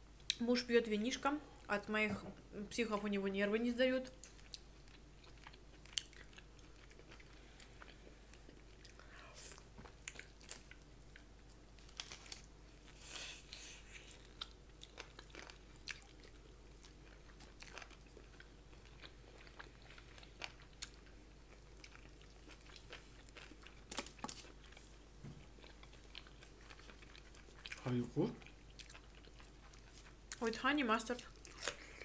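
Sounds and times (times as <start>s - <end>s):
people chewing crunchy food: 4.1s - 32.0s.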